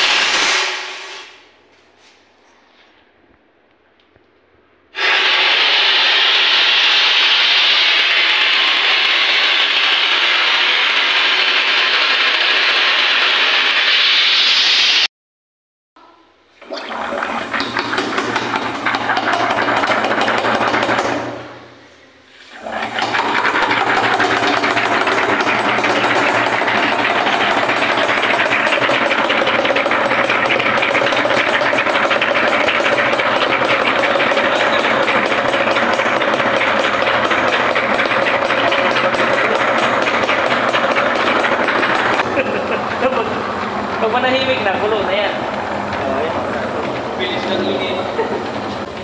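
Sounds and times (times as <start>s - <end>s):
steam crackling in water: 5.0s - 15.0s.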